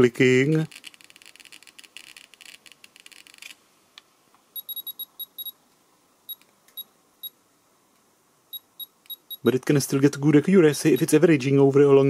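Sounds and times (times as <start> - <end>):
short high electronic beeps: 4.6 - 5.6.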